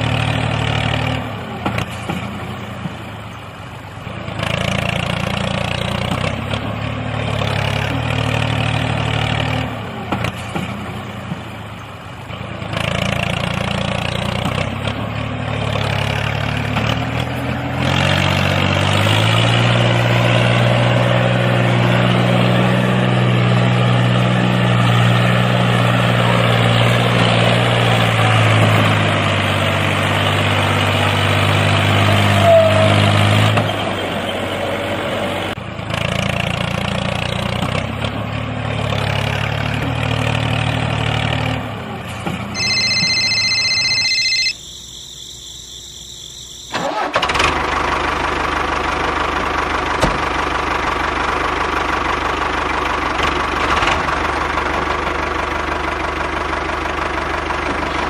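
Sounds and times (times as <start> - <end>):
high steady tones: 42.6 - 46.7
steady higher whine: 42.6 - 46.7
tractor engine idling: 46.0 - 58.0.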